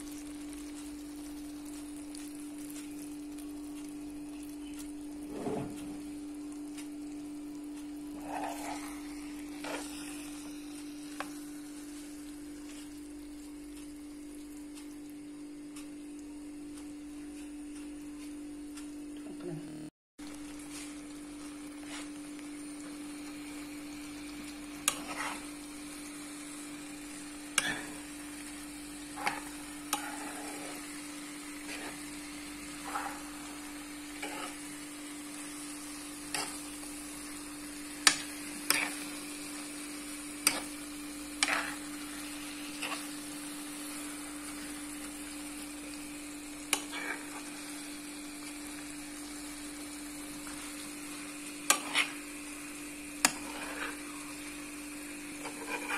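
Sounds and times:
food sizzling: 0.0s - 55.9s
spoon scraping frying pan: 8.2s - 9.0s, 9.6s - 10.0s, 24.8s - 25.6s, 27.0s - 34.8s, 36.1s - 36.8s, 38.0s - 39.7s, 40.4s - 43.3s, 46.7s - 47.5s, 51.6s - 52.2s, 53.2s - 54.2s, 55.4s - 55.9s.

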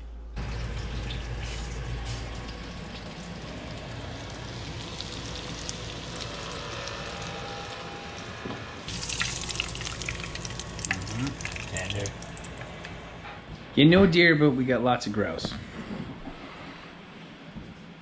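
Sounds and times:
meat sizzling in hot oil: 0.4s - 12.6s.

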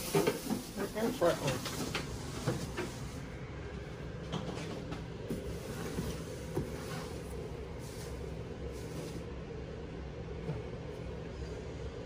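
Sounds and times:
low room hum: 0.0s - 12.0s.

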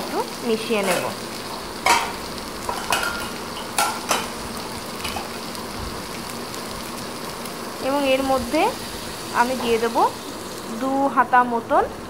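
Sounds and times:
vegetables sizzling in a pan: 0.0s - 12.0s
ladle knocking and scraping pan: 1.8s - 4.3s.

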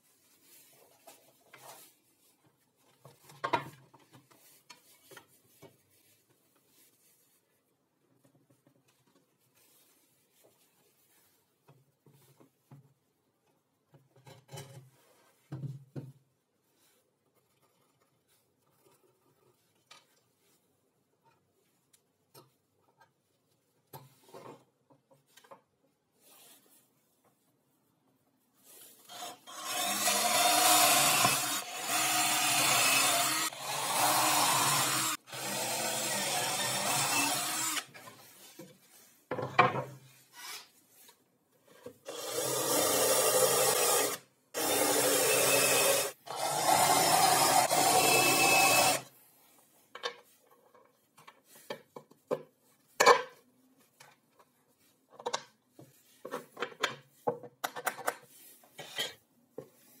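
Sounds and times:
cordless drill boring plywood: 29.1s - 38.0s, 42.0s - 49.1s.

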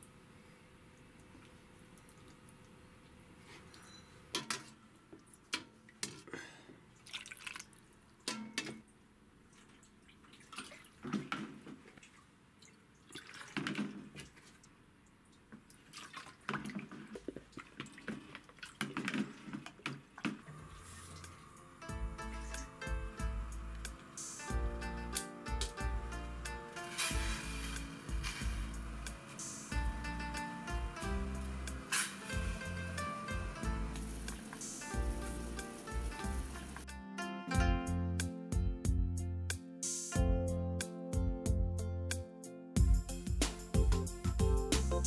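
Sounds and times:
liquid pouring into bowl: 7.0s - 7.9s.

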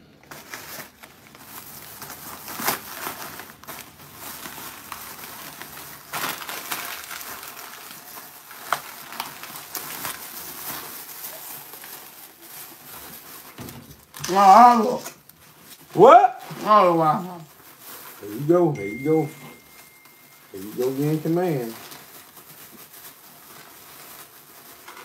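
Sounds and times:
plastic bag rustling: 0.0s - 25.0s.

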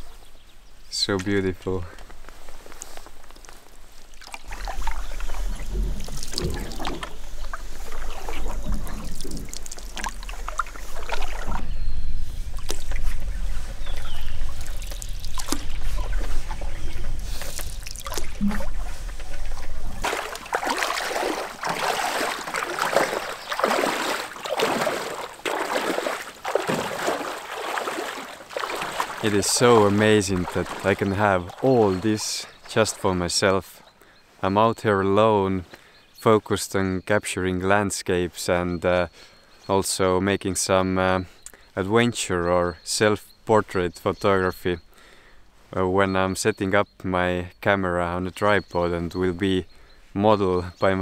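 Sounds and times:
splashing steps wading through water: 2.0s - 34.0s
canoe sloshing: 2.0s - 34.4s
canoe paddle strokes in water: 2.1s - 33.4s
low rumble: 5.2s - 20.1s.

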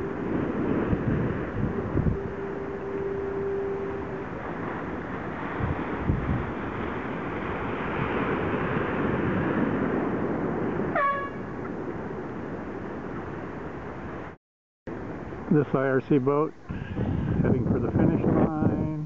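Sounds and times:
short horn blast: 0.0s - 5.8s, 10.8s - 11.6s
wind buffeting microphone: 0.0s - 19.0s.

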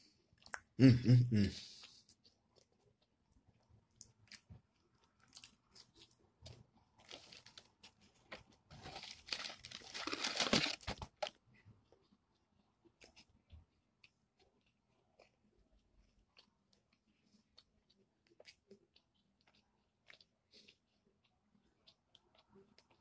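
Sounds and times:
crunching and crinkling: 4.0s - 12.2s
chewing with mouth clicks: 11.2s - 23.0s.

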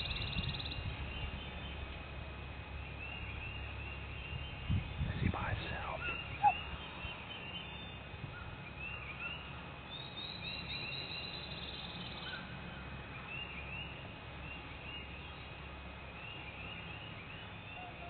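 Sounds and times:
low outdoor background noise: 0.0s - 18.0s
songbirds chirping: 0.0s - 18.0s
bird trill: 5.9s - 12.5s.

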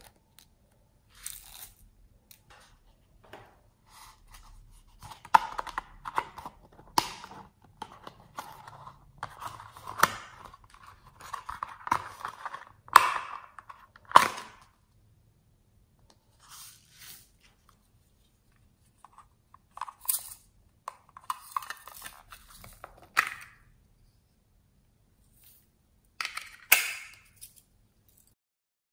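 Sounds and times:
sharp plastic snaps: 26.4s - 27.4s.

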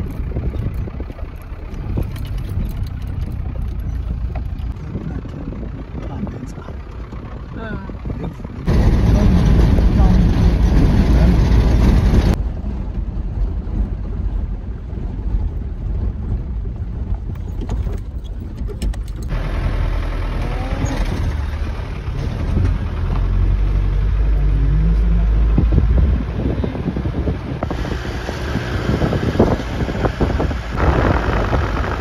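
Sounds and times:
engine and road rumble: 0.0s - 32.0s
knocks and rattles: 16.8s - 19.3s.

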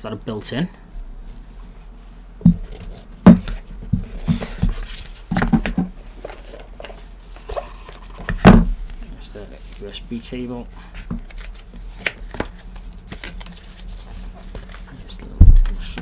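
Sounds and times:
dull knocks on cardboard box: 2.4s - 5.9s
packaging rustling: 11.2s - 16.0s.

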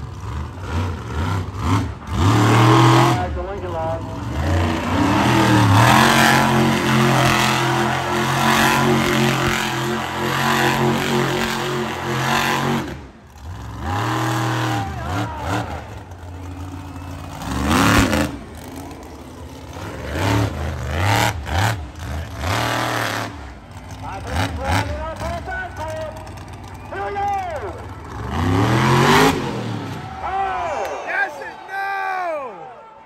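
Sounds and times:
monster truck engine revving: 0.0s - 30.6s.

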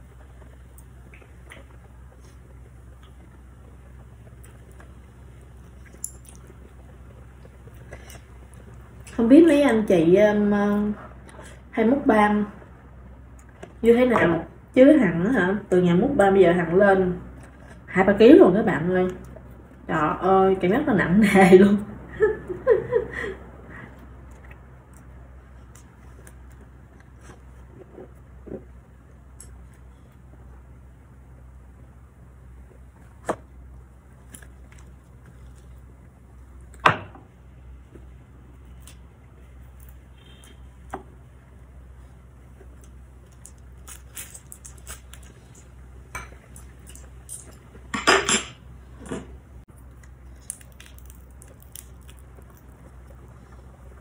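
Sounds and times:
low hum: 0.0s - 54.0s
woman laughing: 22.1s - 23.5s
dishes clattering: 47.9s - 49.3s.

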